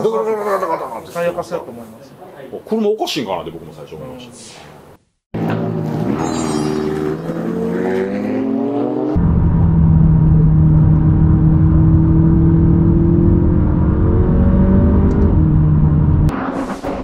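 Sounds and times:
car engine running hard: 7.0s - 16.3s.

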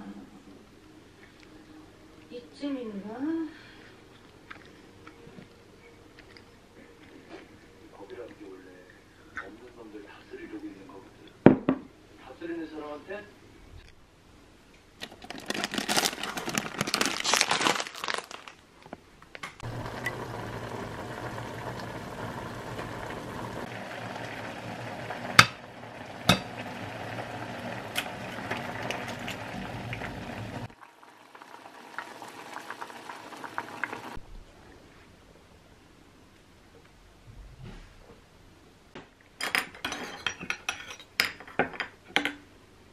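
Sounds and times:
noodle packet crinkling: 15.0s - 19.4s
water boiling in a pot: 19.6s - 34.2s.

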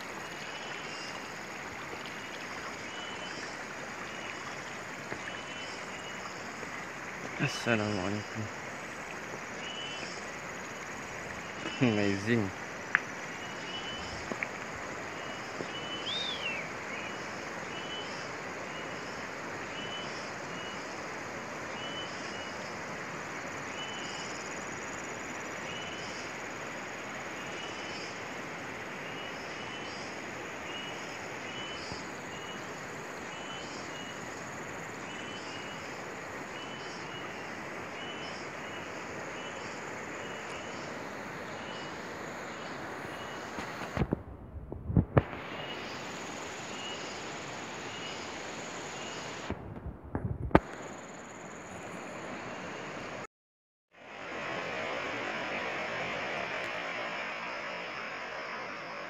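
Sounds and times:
flowing river water: 0.0s - 44.3s, 45.2s - 49.6s, 50.6s - 53.3s, 54.0s - 59.0s
high whistled call: 15.8s - 16.7s.

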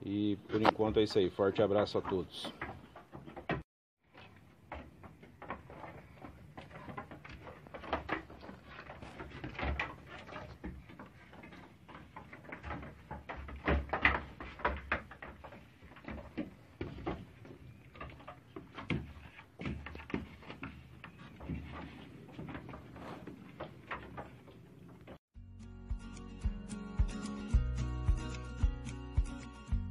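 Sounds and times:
hooves knocking on wooden boards: 0.5s - 25.2s.

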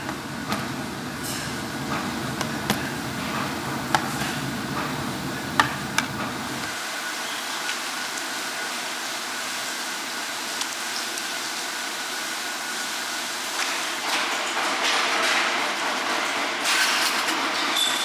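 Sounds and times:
faint machine hum: 0.0s - 18.0s
rushing hiss of steaming water: 6.7s - 14.0s.

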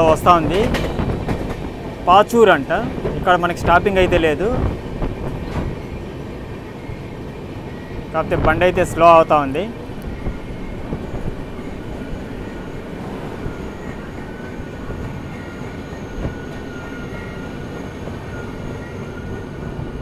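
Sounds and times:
train wheels rumbling on track: 0.0s - 20.0s
high brake squeal: 10.0s - 19.9s.

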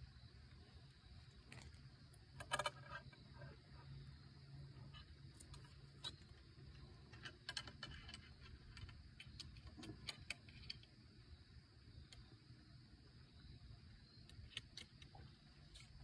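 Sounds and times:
small clicks and ticks: 1.3s - 3.2s, 4.9s - 11.0s, 12.0s - 12.3s, 14.2s - 16.0s.

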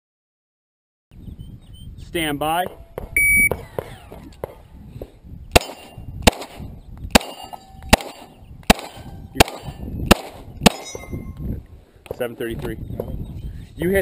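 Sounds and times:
pistol shots: 5.5s - 11.0s.

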